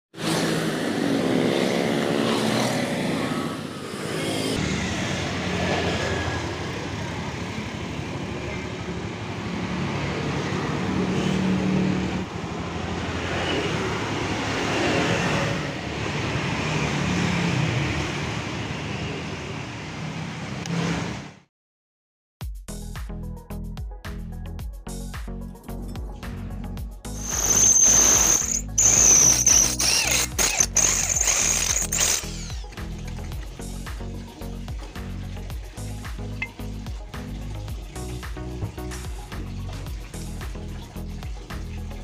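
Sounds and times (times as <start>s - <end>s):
motor scooter engine running: 0.2s - 9.1s, 27.2s - 34.2s
vehicle passing: 0.2s - 21.4s
street traffic: 0.2s - 21.5s, 27.2s - 33.3s.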